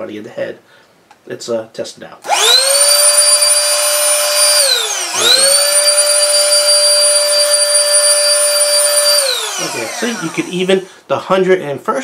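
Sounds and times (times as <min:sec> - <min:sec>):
air duster motor whining: 0:02.2 - 0:11.0.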